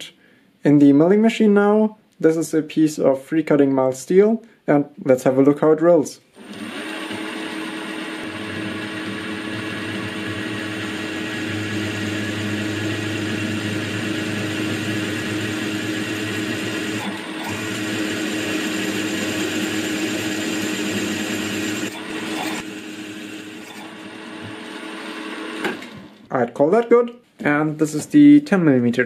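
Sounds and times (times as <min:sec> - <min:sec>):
drill cutting into steel: 0:06.4 - 0:26.2
milling machine hum: 0:06.4 - 0:26.2.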